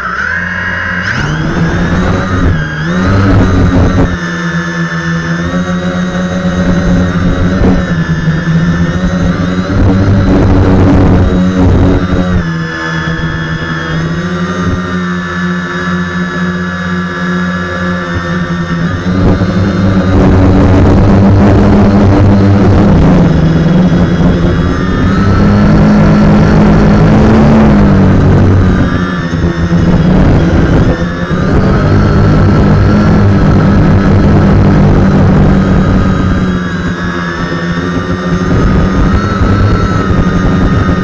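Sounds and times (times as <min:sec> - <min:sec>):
drone motors and propellers buzzing: 0:00.0 - 0:41.0.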